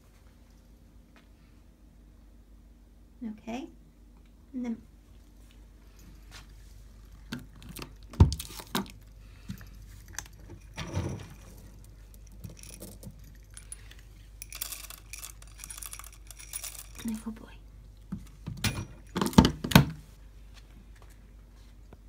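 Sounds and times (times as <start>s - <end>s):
hand rattling kibble: 9.6s - 17.4s
kibble rattling in plastic bowl: 14.4s - 17.2s.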